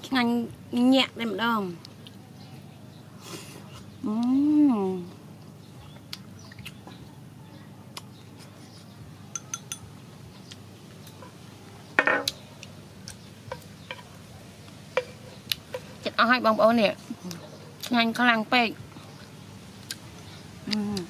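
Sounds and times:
chopsticks clinking on a bowl: 0:09.3 - 0:09.9.

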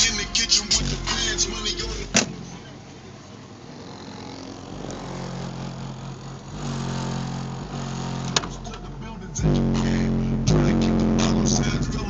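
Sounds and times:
muffled bass music from subwoofer: 0:00.0 - 0:02.6, 0:06.6 - 0:12.0
car door shutting: 0:02.1 - 0:02.6, 0:08.2 - 0:08.9.

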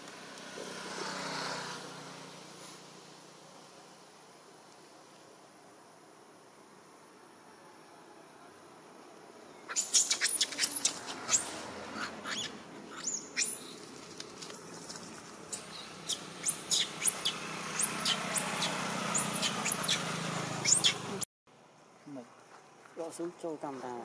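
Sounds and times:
monkey squealing: 0:09.7 - 0:21.0.

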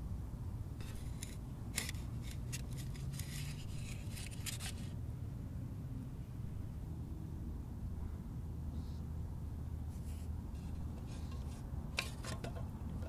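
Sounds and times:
wooden spatula scraping griddle: 0:10.0 - 0:13.0.

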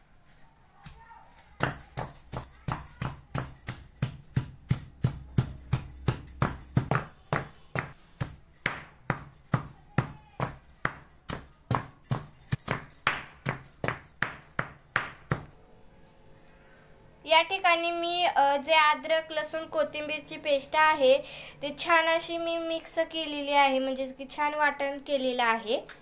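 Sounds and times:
pestle pounding in stone mortar: 0:01.6 - 0:15.6.

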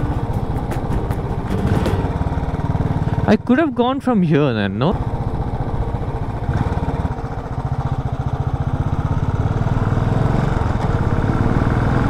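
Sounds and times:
motorcycle engine accelerating: 0:00.0 - 0:04.1, 0:04.7 - 0:12.0.

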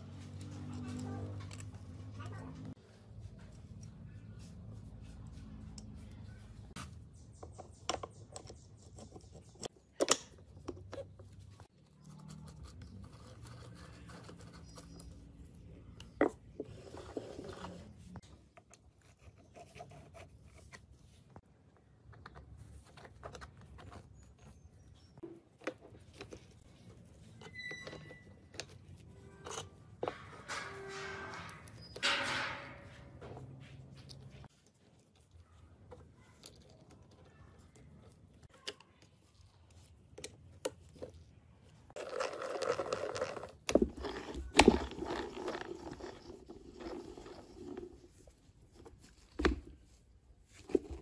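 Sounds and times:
metal gears clicking and scraping: 0:26.1 - 0:34.9, 0:42.0 - 0:49.1.

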